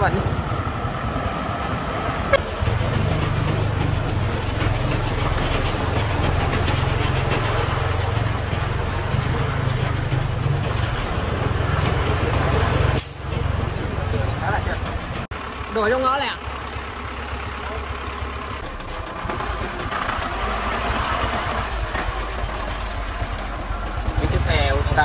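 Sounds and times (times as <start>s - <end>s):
diesel engine droning: 0.0s - 25.0s.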